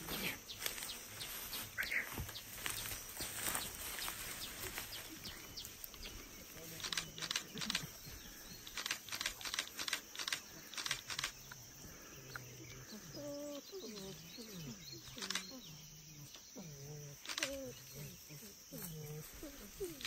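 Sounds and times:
sharp crackling and rustling: 0.0s - 11.6s, 15.0s - 15.6s, 17.2s - 20.0s
rain forest ambience: 0.0s - 11.8s.

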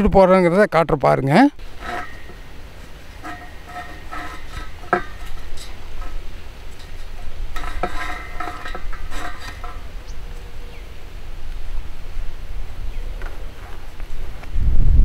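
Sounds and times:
metal yoke tackle clinking: 1.6s - 10.4s.

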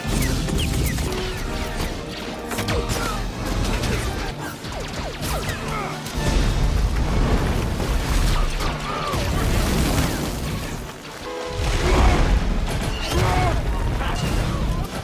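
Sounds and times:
blaster fire: 0.0s - 10.9s
battle film music: 0.0s - 15.0s.

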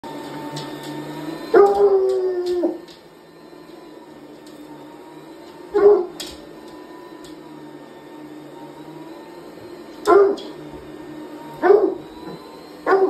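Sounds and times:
vacuum cleaner humming: 0.0s - 13.0s
dog howling: 1.5s - 2.8s, 5.7s - 6.2s, 11.6s - 13.0s.

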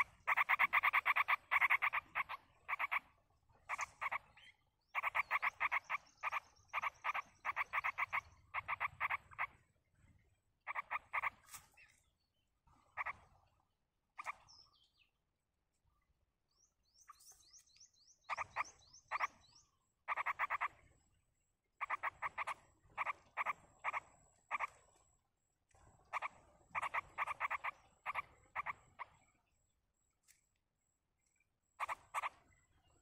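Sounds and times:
animal calls in pulsed bursts: 0.0s - 3.1s, 5.0s - 9.6s, 10.7s - 11.3s, 20.1s - 20.8s, 21.8s - 24.7s, 26.1s - 29.1s.

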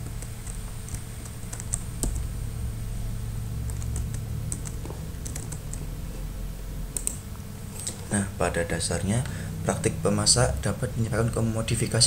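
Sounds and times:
low hum: 0.0s - 12.0s
computer keyboard clicks: 3.7s - 5.8s.

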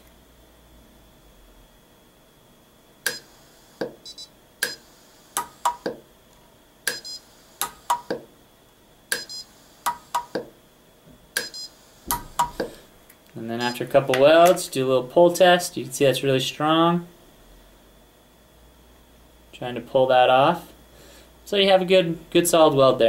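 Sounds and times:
welder sharp clicks: 3.0s - 4.0s, 4.6s - 6.0s, 6.9s - 8.2s, 9.1s - 10.5s, 11.4s - 13.2s.

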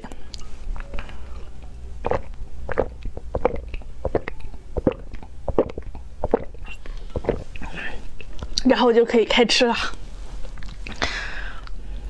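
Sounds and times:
person gulping water: 0.0s - 8.6s.

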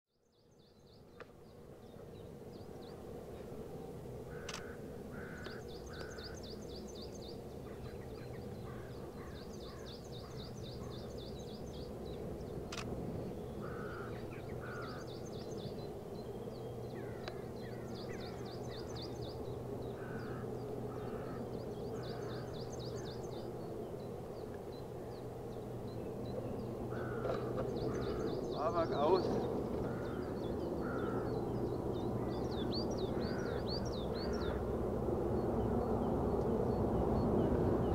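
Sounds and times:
distant turboprop aircraft droning: 0.2s - 37.9s
small birds trilling: 0.2s - 37.9s
crows cawing: 4.3s - 6.5s, 8.6s - 11.1s, 13.6s - 15.2s, 17.0s - 18.8s, 20.0s - 23.3s, 26.9s - 31.4s, 32.2s - 34.6s.

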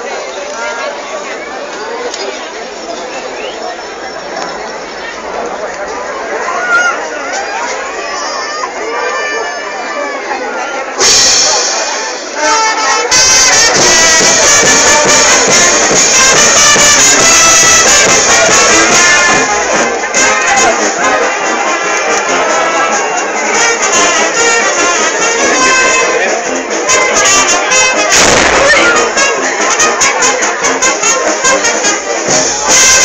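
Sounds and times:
brass band playing carnival music: 0.0s - 33.0s
loud burst of noise: 28.1s - 29.7s.

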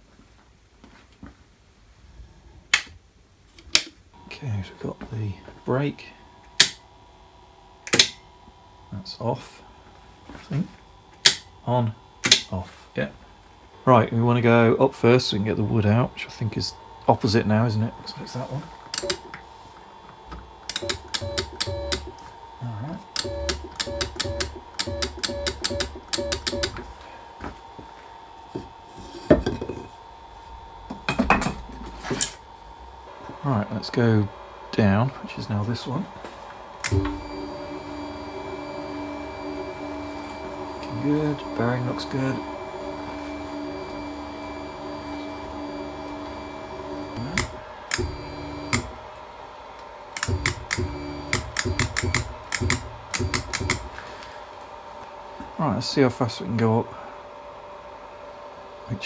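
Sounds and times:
sharp switch clicks: 6.5s - 6.8s, 7.9s - 8.2s, 11.2s - 11.5s, 12.2s - 12.5s, 50.2s - 53.9s
motor ticking and humming: 18.8s - 19.4s, 20.2s - 26.9s, 36.8s - 49.2s, 50.2s - 54.0s.

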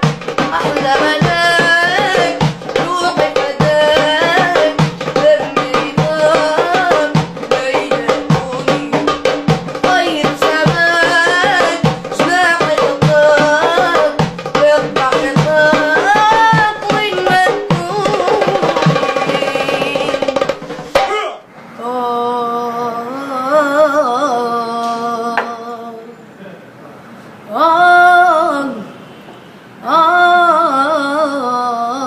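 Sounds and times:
frame drum played by hand: 0.0s - 21.2s
goblet drum: 0.0s - 21.4s
boy singing: 0.0s - 26.3s, 27.4s - 29.0s, 29.8s - 32.0s.

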